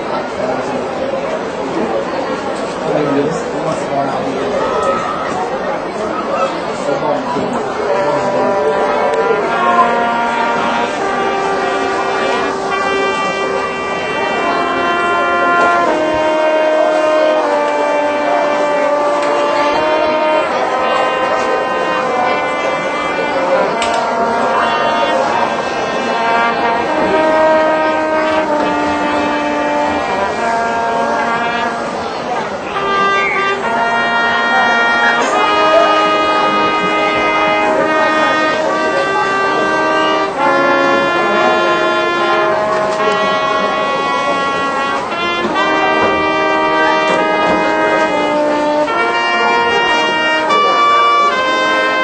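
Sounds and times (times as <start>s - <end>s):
brass band playing slow chords: 0.0s - 52.0s.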